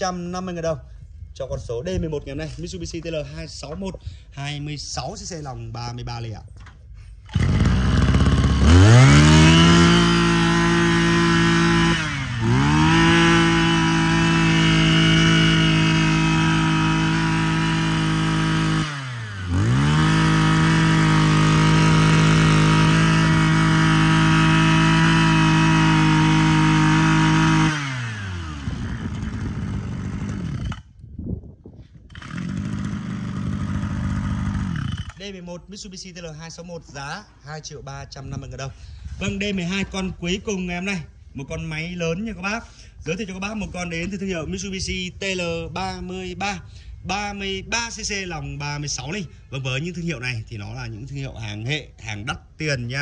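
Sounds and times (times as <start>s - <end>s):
brush cutter engine revving: 7.2s - 31.0s, 32.1s - 35.3s.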